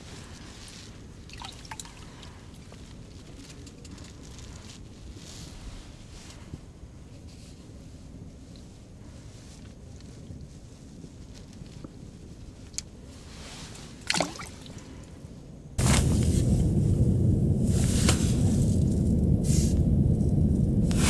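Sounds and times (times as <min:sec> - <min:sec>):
loud rumbling with hiss: 0:15.8 - 0:21.0.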